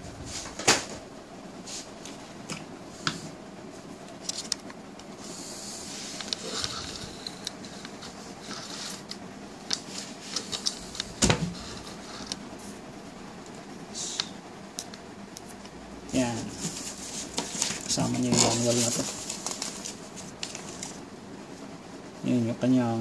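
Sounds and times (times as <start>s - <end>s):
rustling: 16.4s - 21.0s.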